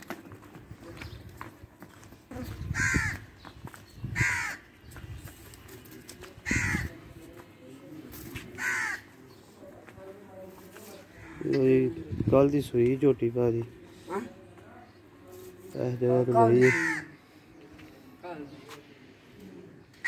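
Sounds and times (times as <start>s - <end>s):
crow cawing: 2.7s - 3.3s, 4.2s - 4.7s, 6.4s - 7.0s, 8.6s - 9.1s, 16.6s - 17.2s.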